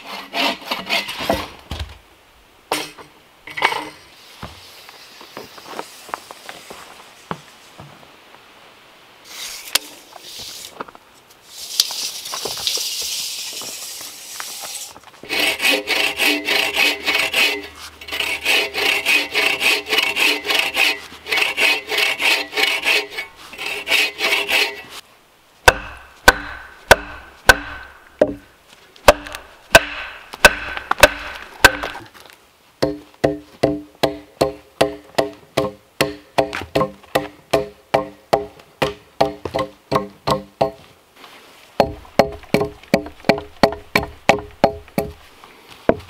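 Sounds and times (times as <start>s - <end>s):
saw cutting log: 0.0s - 1.4s, 14.1s - 25.0s, 25.7s - 28.4s, 29.1s - 32.0s
axe chopping log: 25.6s - 32.0s, 32.8s - 40.8s, 41.8s - 45.2s.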